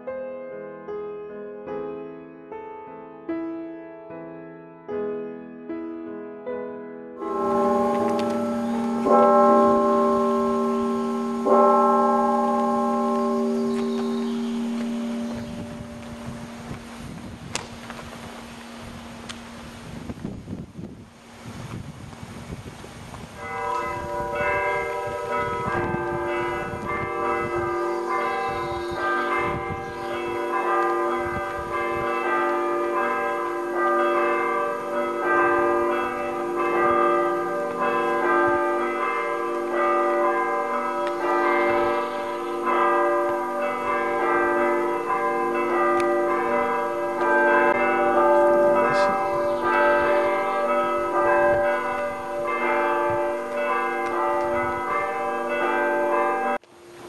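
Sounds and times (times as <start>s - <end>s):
bells ringing: 7.2s - 19.6s, 23.4s - 56.6s.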